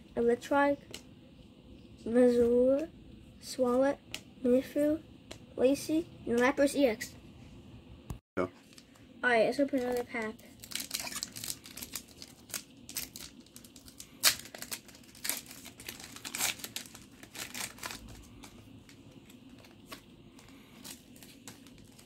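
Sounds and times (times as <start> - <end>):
foil wrapper tearing and crinkling: 9.8 - 22.0.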